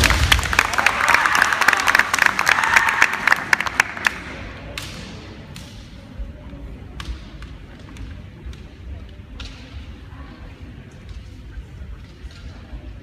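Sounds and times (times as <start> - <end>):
spectators clapping: 0.0 - 4.5.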